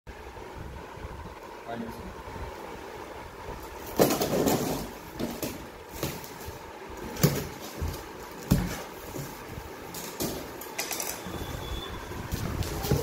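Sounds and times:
cardboard scrapes and knocks: 7.1s - 9.6s.

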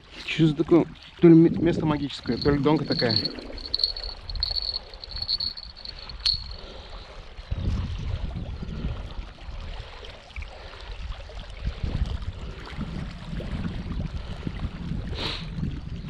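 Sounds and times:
wind rumbling on microphone: 1.4s - 10.1s, 10.8s - 16.0s.

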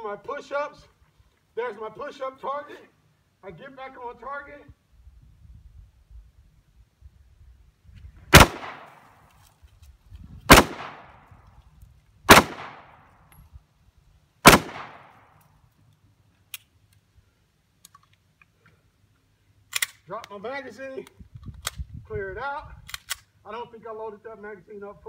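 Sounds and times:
pistol shots with echo: 8.3s - 9.0s, 10.5s - 11.2s, 12.3s - 13.0s, 14.4s - 15.3s.

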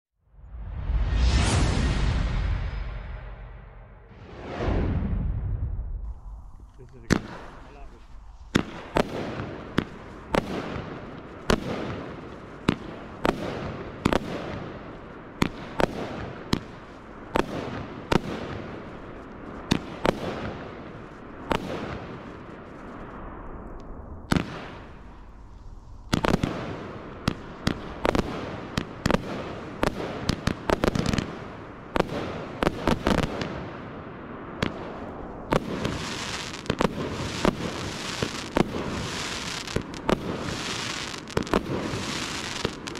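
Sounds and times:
fireworks crackling hiss: 6.0s - 33.8s, 34.6s - 42.9s
fireworks shots firing: 6.8s - 42.9s.

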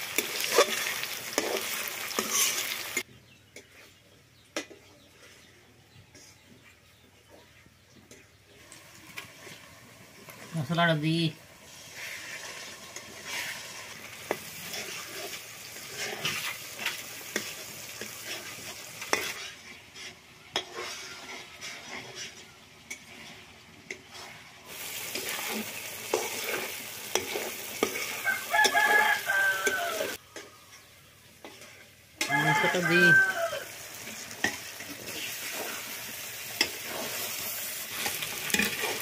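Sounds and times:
onions sizzling in a pan: 0.0s - 3.1s, 8.5s - 39.0s
metal spatula scraping a pan: 0.0s - 4.0s, 11.6s - 39.0s
rooster crowing: 28.1s - 30.7s, 32.2s - 33.9s.

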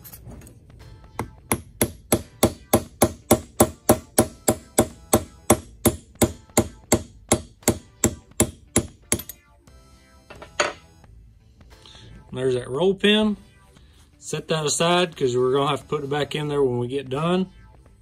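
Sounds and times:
hammer tapping a nail punch: 1.2s - 9.3s.

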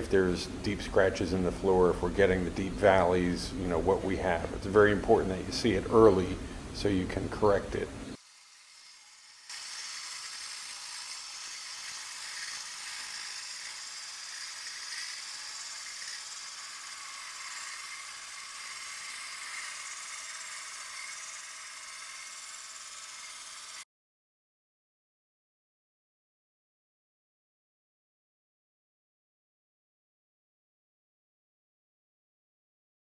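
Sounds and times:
concrete floor grinder hissing: 8.2s - 23.8s.

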